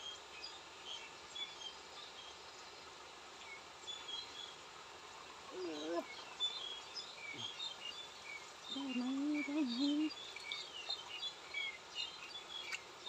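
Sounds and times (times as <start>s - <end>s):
small birds chirping: 5.2s - 13.0s
wavering drawn-out voice: 8.8s - 10.1s.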